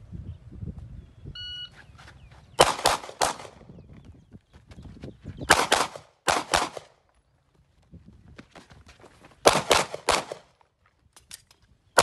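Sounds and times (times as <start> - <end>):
gunshots with echo: 2.6 - 3.6, 5.5 - 6.9, 9.5 - 10.5.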